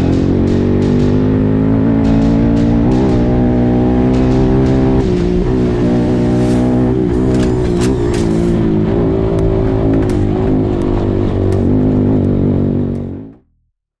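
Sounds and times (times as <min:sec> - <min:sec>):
motorcycle engine running: 0:00.0 - 0:13.5.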